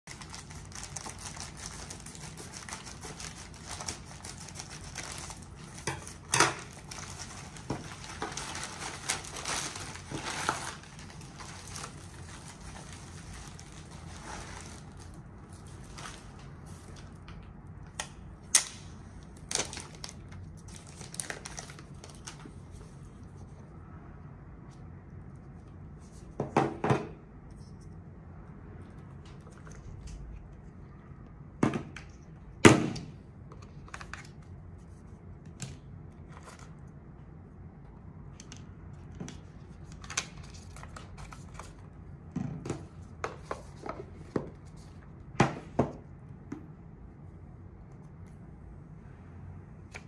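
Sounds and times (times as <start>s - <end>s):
plastic crinkling and rustling: 0.1s - 17.5s, 19.2s - 23.5s.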